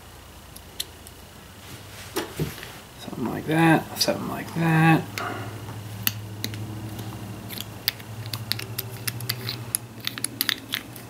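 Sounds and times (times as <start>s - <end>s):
low hum: 2.8s - 11.0s
small metal parts clicking: 6.0s - 11.0s.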